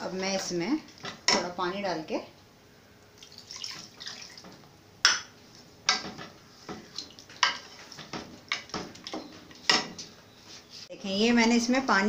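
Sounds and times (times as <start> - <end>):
water pouring into frying pot: 3.2 - 4.5.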